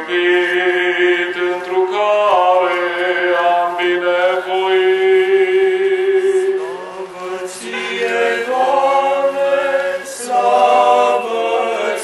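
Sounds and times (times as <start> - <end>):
man chanting: 0.0 - 9.0.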